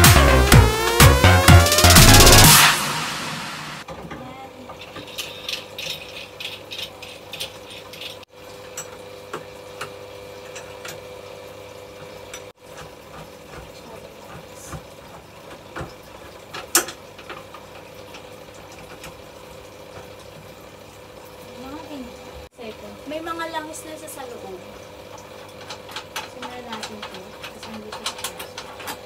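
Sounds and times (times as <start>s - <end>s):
clicks and rattles of bike parts: 3.9s - 9.0s, 16.2s - 19.2s, 25.4s - 29.0s.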